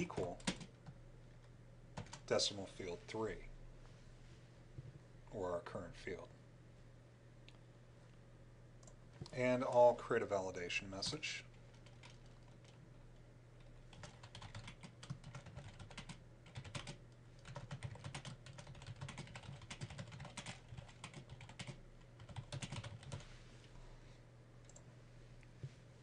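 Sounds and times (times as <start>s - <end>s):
low steady hum: 0.0s - 26.0s
typing on computer keyboard: 0.2s - 1.0s, 2.0s - 2.2s, 11.0s - 12.8s, 13.9s - 23.2s.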